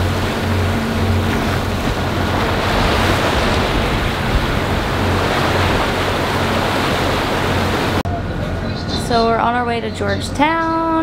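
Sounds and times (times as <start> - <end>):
wind buffeting microphone: 0.0 - 8.0
sea water churning along hull: 0.0 - 11.0.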